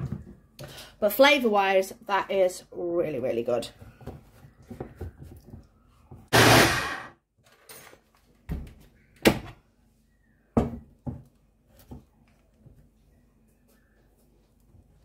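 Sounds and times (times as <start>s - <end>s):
loud burst of blender noise: 6.3s - 7.2s.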